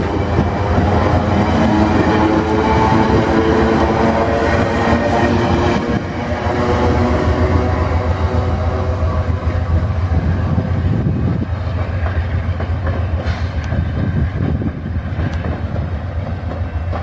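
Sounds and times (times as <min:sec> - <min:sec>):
sharp clicks of train wheels: 0:00.0 - 0:08.4, 0:11.0 - 0:17.0
train wheels rumbling on rails: 0:00.0 - 0:17.0.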